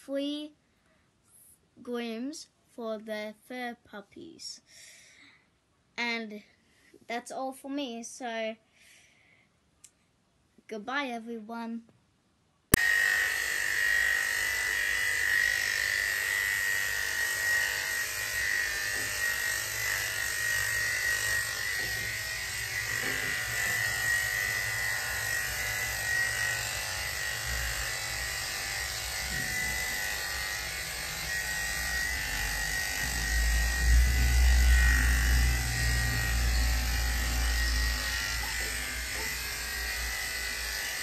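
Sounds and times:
electric clippers humming: 12.7s - 41.0s.

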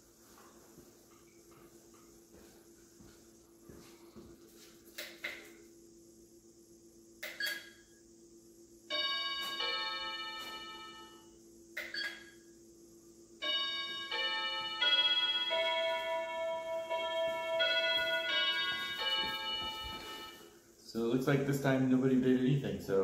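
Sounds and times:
doorbell chime tune: 8.9s - 11.1s, 13.4s - 20.5s.

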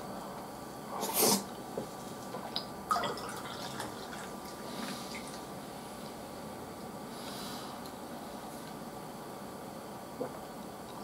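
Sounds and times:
beer pouring into a glass: 2.9s - 5.4s.

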